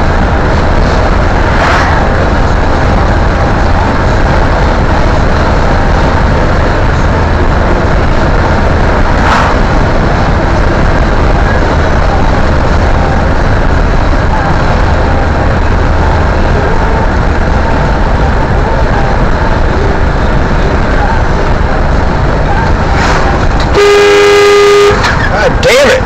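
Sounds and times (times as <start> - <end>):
car road and engine rumble: 0.0 - 26.0
brief sharp noise: 23.0 - 23.8.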